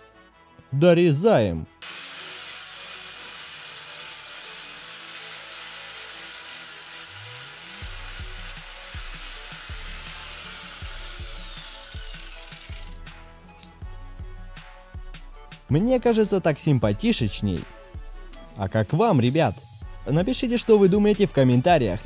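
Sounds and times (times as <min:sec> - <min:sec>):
angle grinder cutting: 0:01.8 - 0:13.8.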